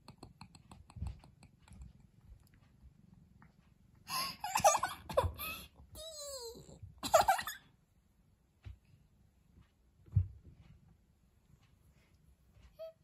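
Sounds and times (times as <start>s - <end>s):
faint regular clicking: 0.0s - 4.0s, 8.2s - 12.8s
child giggling: 4.1s - 7.6s.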